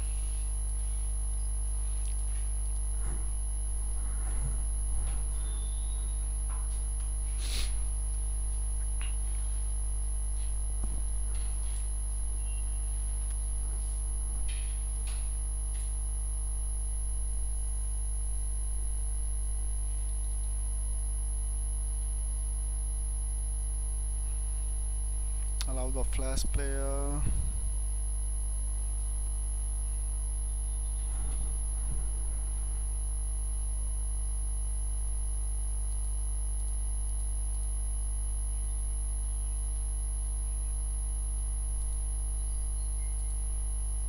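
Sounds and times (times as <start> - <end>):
high whine: 0.0 - 20.4
electrical mains hum: 0.0 - 44.0.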